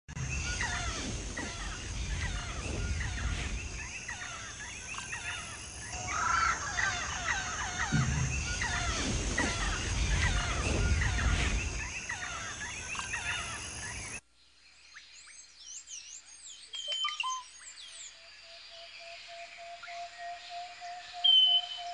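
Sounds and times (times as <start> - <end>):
low rumble: 0.1 - 13.1
chorus of birds chirping: 0.1 - 21.9.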